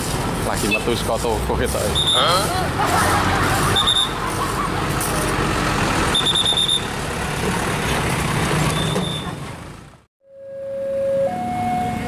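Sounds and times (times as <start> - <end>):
diesel dump truck passing: 0.0 - 10.1
short high-pitched tones: 10.2 - 12.0.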